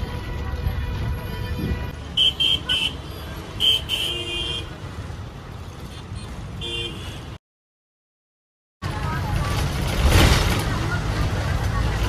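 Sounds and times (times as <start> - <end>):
vehicle horns honking: 0.0 - 4.8, 5.9 - 7.4
low rumble of traffic: 0.0 - 7.4, 8.8 - 12.0.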